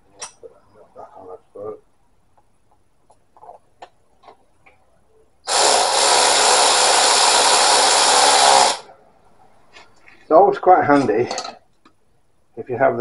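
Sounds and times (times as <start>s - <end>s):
power tool whirring: 5.5s - 8.9s.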